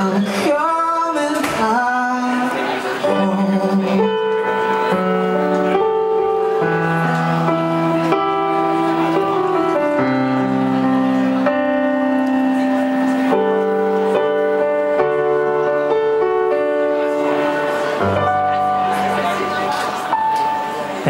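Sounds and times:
man singing: 0.0s - 5.0s
electric keyboard chords: 0.0s - 21.0s.

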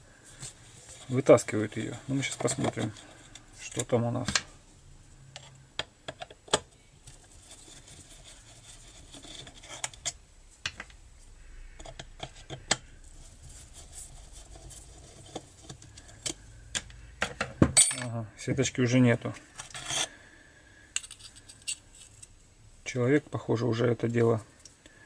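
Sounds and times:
screwdriver scraping metal: 19.6s - 20.1s.

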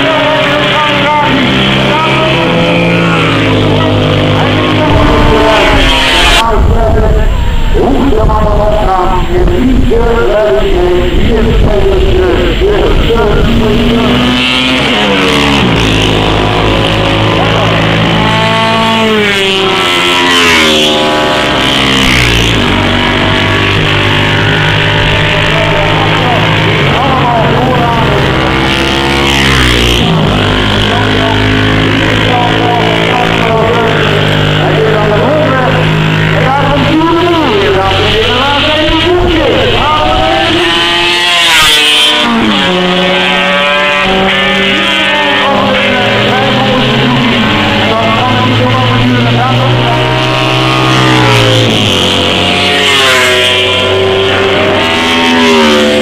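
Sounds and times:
racing motorcycles passing: 0.0s - 56.0s.

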